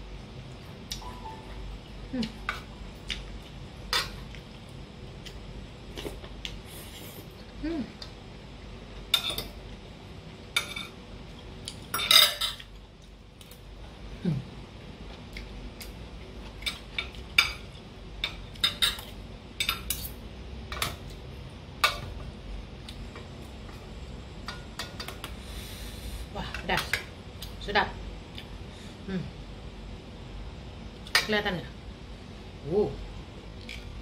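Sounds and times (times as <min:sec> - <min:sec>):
cutlery clinking on bowl and plate: 0:11.9 - 0:12.7.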